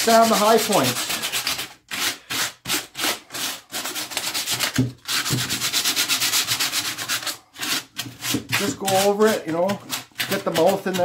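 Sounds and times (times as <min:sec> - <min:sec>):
sandpaper rubbing on wood: 0:00.0 - 0:11.0.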